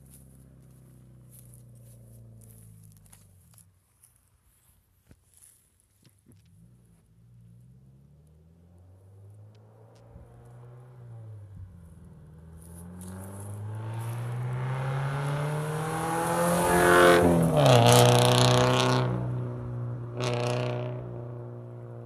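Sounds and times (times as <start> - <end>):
car accelerating past: 7.3 - 22.0.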